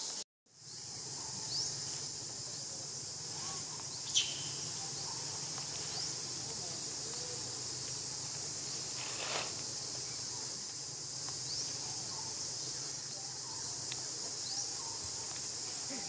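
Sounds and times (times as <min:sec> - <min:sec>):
jungle insects droning: 0:00.0 - 0:16.0
bird chirps: 0:03.4 - 0:05.3.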